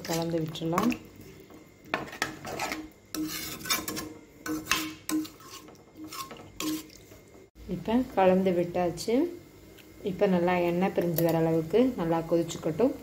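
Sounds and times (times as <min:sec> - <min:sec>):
ladle scraping pan: 0:01.9 - 0:07.3.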